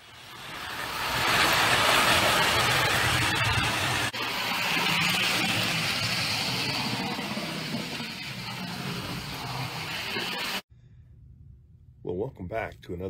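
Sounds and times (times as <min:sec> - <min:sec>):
toy train wheels on rails: 0:00.0 - 0:10.6.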